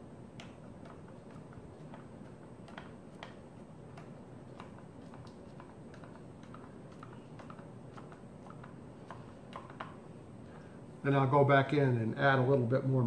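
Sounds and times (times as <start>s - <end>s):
light plastic clicks and taps: 0.4s - 10.6s.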